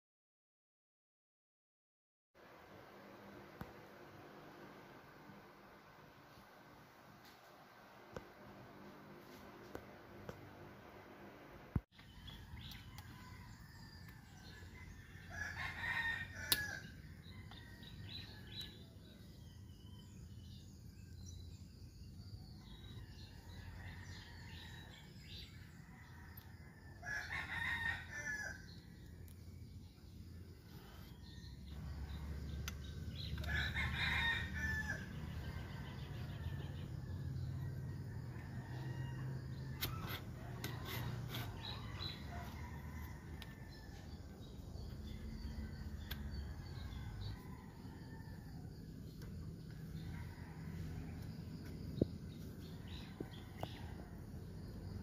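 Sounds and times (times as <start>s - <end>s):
rooster crowing: 12.2s - 18.6s, 25.8s - 28.8s, 31.2s - 44.3s, 45.1s - 48.9s.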